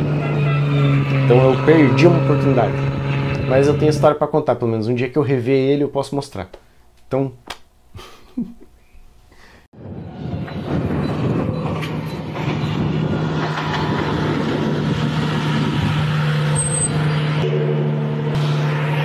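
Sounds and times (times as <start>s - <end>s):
car engine running loud: 0.0s - 4.1s, 11.1s - 19.0s.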